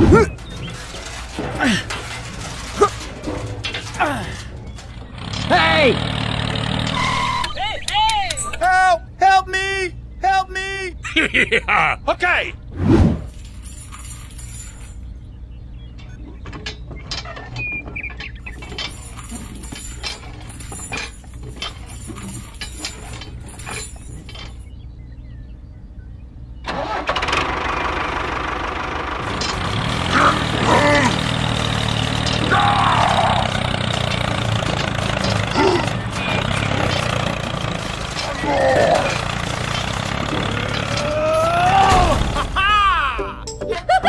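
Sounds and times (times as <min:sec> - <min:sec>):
tractor engine running: 0:00.0 - 0:10.2, 0:13.3 - 0:44.0
metal chain clinking: 0:00.2 - 0:06.9, 0:13.3 - 0:15.2, 0:18.4 - 0:24.8.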